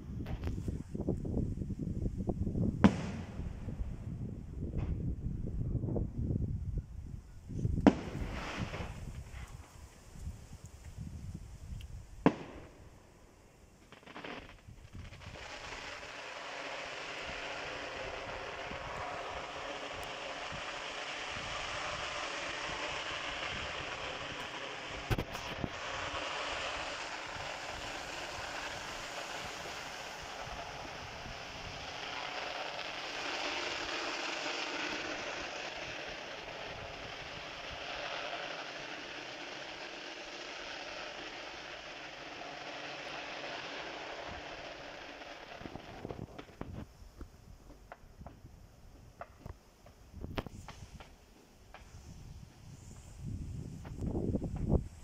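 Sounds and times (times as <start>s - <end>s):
fireworks bang: 2.7s - 4.0s, 7.7s - 9.4s, 12.2s - 13.0s, 13.8s - 46.8s
steady rushing noise: 14.9s - 46.6s.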